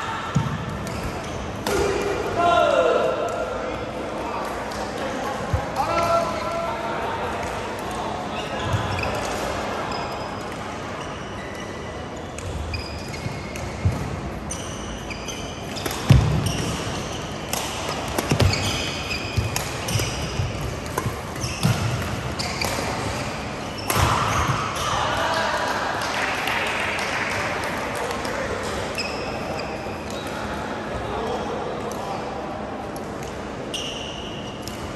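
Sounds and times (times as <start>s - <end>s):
busy hall noise: 0.0s - 34.9s
shoes squeaking on court: 0.8s - 1.6s, 8.3s - 24.9s, 29.0s - 30.4s
rackets striking shuttlecock: 15.7s - 24.8s.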